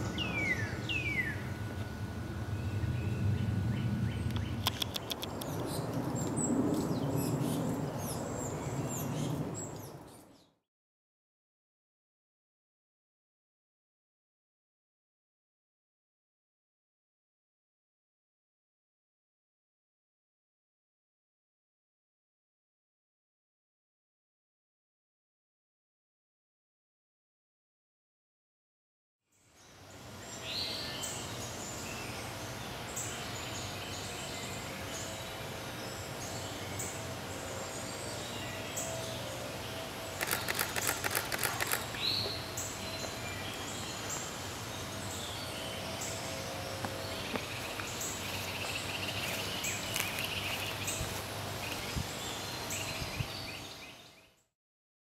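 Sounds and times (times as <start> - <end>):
background hum and hiss: 0.0 - 10.5, 29.3 - 54.4
rapid sharp clicks: 40.2 - 42.0.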